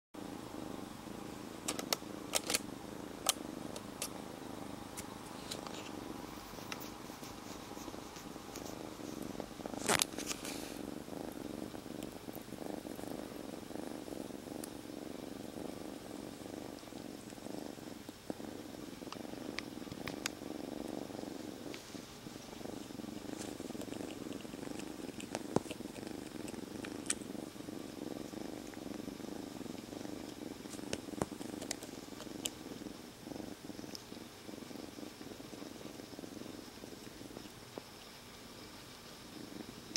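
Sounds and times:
kitten purring: 0.2s - 39.9s
sharp clicks: 1.7s - 2.6s.

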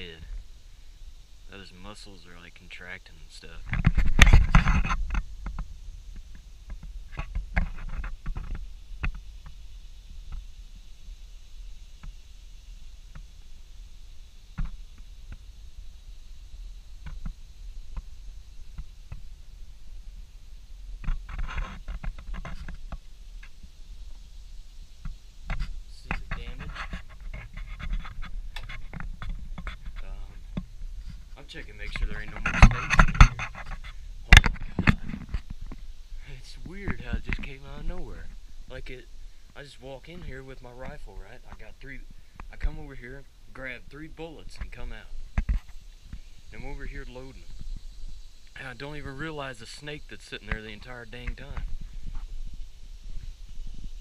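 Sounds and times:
camera handling rumble: 3.7s - 9.2s
handling noise: 25.0s - 35.9s.

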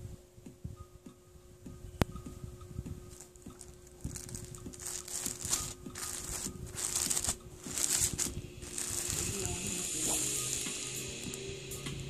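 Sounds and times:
plastic bag crinkling: 3.1s - 11.4s.

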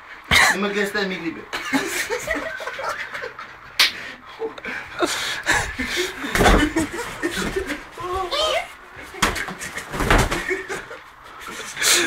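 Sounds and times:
heavy thump: 6.3s - 7.8s.

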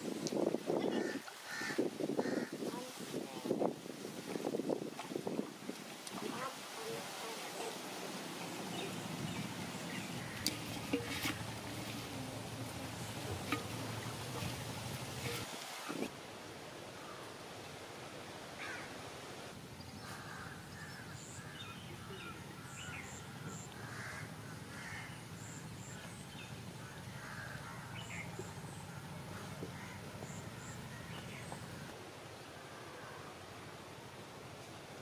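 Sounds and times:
crows cawing: 0.9s - 2.6s, 18.6s - 18.9s, 20.0s - 21.7s, 23.8s - 25.2s, 26.8s - 28.0s, 28.9s - 31.2s
low steady hum: 8.4s - 15.5s.

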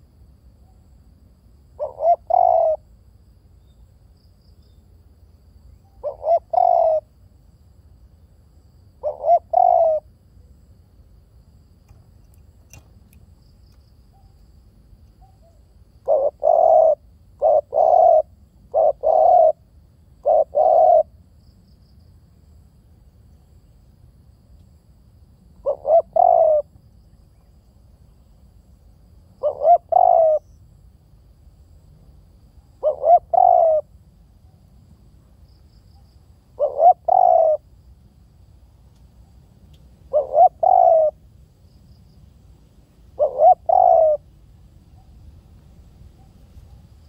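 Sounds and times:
dove cooing: 1.8s - 2.9s, 6.0s - 7.1s, 9.0s - 10.1s, 15.2s - 21.1s, 25.6s - 26.7s, 29.4s - 30.6s, 32.8s - 33.9s, 36.6s - 37.7s, 40.1s - 41.2s, 43.2s - 44.3s.

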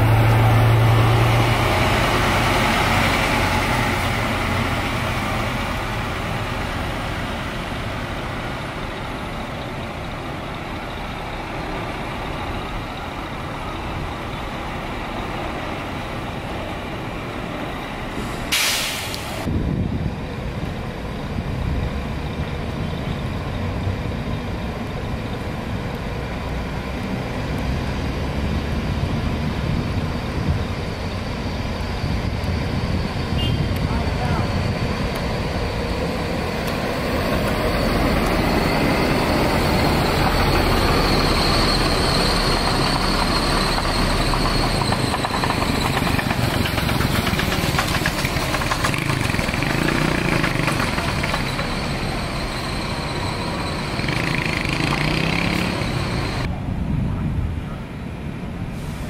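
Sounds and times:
bus engine rumble: 0.0s - 59.0s
air brake hiss: 18.2s - 19.5s, 58.7s - 59.0s.

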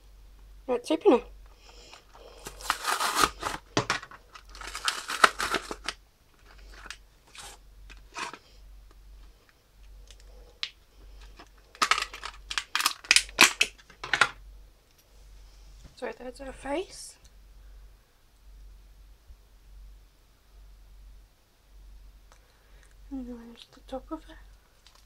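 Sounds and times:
plastic blister crinkling: 1.5s - 14.4s, 24.5s - 25.0s
cardboard tearing: 2.2s - 6.0s, 6.6s - 8.4s.

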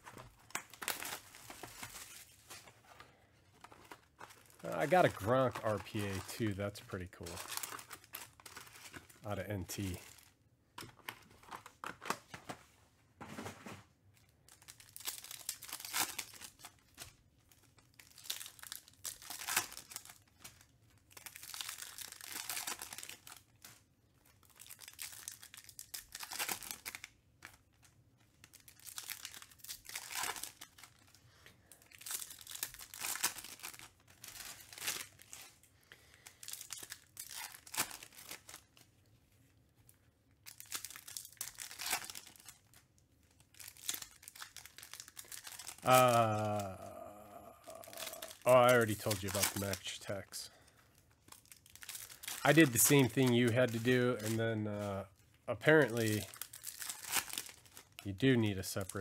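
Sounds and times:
wrappers tearing and crinkling: 0.0s - 12.4s, 14.2s - 59.0s.

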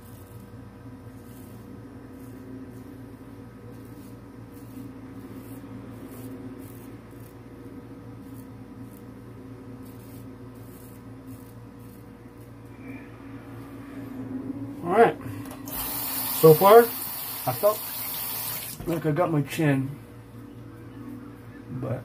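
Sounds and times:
razor scraping stubble: 0.0s - 12.8s
electrical hum: 0.0s - 22.0s.

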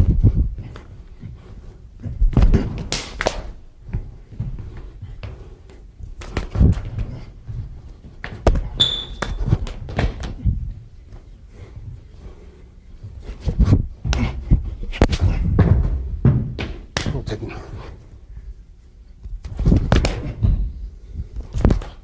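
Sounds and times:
hands slapping and blocking: 2.3s - 3.6s, 6.2s - 7.1s, 16.6s - 17.3s, 19.4s - 20.5s, 21.4s - 22.0s
brief high squeak: 8.8s - 9.2s.

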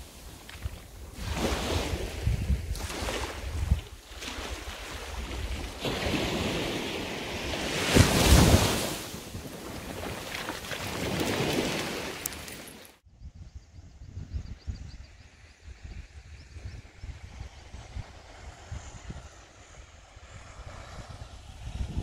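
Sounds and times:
wind buffeting microphone: 0.0s - 10.2s, 13.1s - 22.0s
small waves washing on sand: 0.0s - 13.0s.

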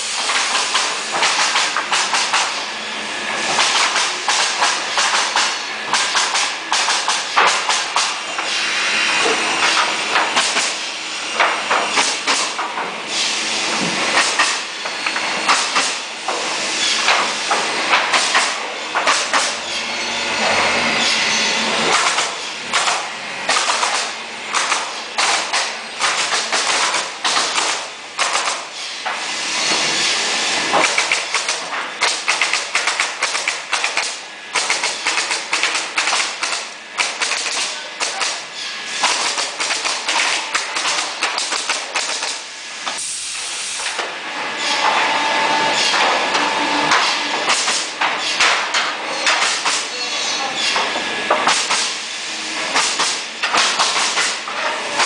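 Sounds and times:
pneumatic nailer firing: 0.0s - 19.8s, 21.0s - 44.2s, 45.7s - 50.0s, 50.6s - 55.0s
air hissing: 42.3s - 44.0s.

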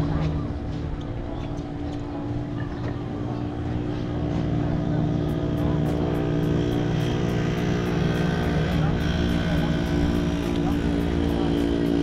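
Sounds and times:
drone propellers buzzing: 0.0s - 12.0s.

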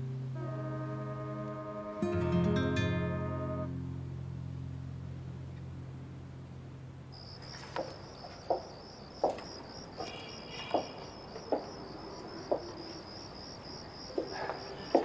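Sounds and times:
crickets chirring: 5.6s - 15.0s
footsteps walking: 7.3s - 13.0s, 14.0s - 15.0s.

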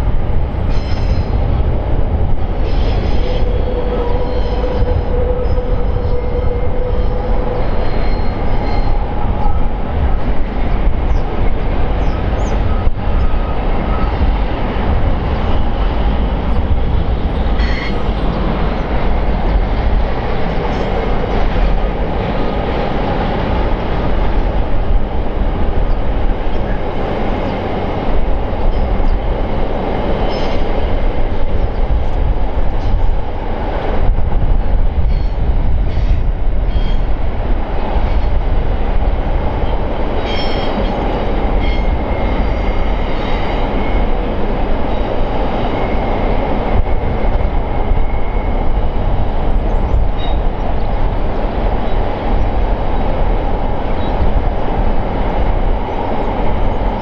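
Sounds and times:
train wheels rumbling on rails: 0.0s - 57.0s
high wheel squeal: 2.6s - 9.6s, 17.6s - 18.1s, 40.2s - 41.0s.

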